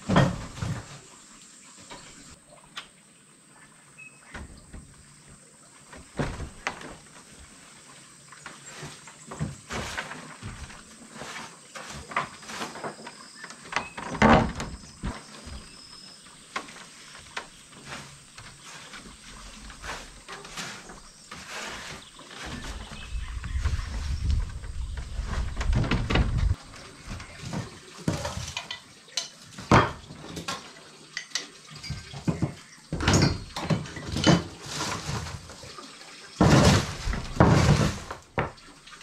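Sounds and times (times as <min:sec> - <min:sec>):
wooden door swinging on hinges: 0:06.0 - 0:07.0, 0:13.6 - 0:15.7, 0:22.4 - 0:28.4
wooden door knocks and clicks: 0:13.8 - 0:15.1, 0:25.5 - 0:26.6.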